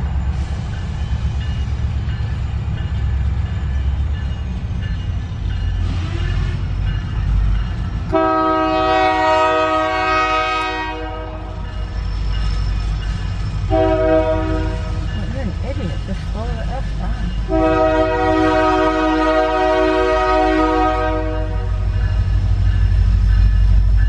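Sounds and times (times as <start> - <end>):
train horn blast: 5.8 - 6.7, 8.1 - 11.6, 13.7 - 15.1, 17.5 - 22.0.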